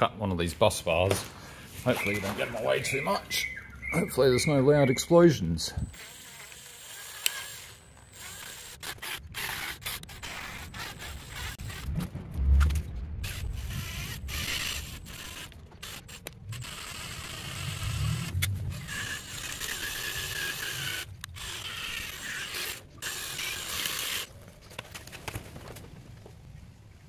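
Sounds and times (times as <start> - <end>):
power drill boring metal: 5.8 - 11.8, 13.2 - 24.3.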